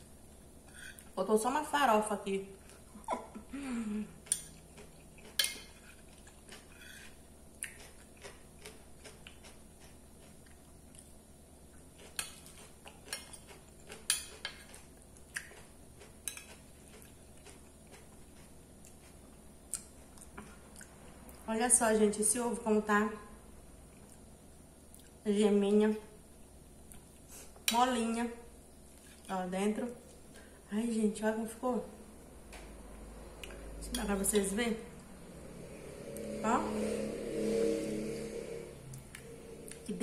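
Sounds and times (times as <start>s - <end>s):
fork scraping ceramic plate: 0.7s - 1.1s, 5.2s - 7.2s
soft chewing: 2.6s - 3.4s, 4.0s - 21.4s, 23.8s - 24.3s, 24.9s - 25.2s, 26.8s - 27.7s, 28.8s - 30.5s.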